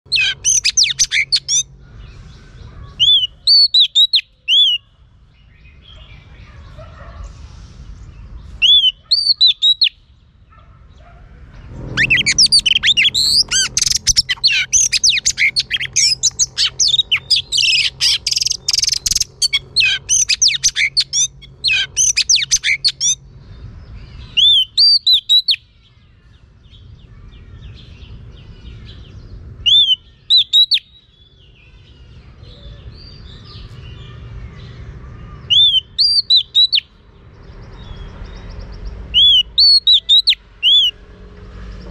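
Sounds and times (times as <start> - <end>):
bird singing whistled phrases: 0.1 - 1.7, 3.0 - 4.9, 8.6 - 10.0, 12.0 - 23.2, 24.3 - 25.6, 29.6 - 31.0, 35.5 - 36.9, 39.2 - 41.0.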